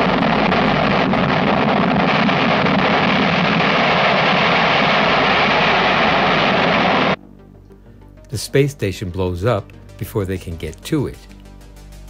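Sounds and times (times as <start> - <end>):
rocket engine roaring: 0.0 - 7.2.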